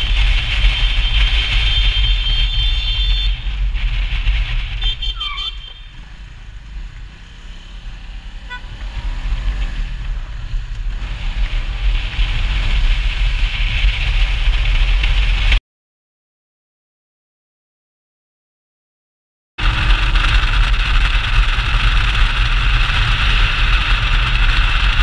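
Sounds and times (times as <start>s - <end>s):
motorcycle engine rumble: 0.0s - 15.6s, 19.6s - 25.0s
wind rush: 5.9s - 15.6s.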